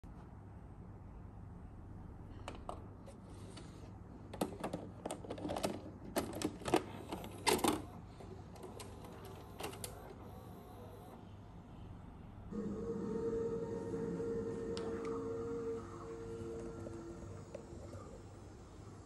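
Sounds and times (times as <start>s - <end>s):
video recorder loading cassette: 5.4s - 10.2s.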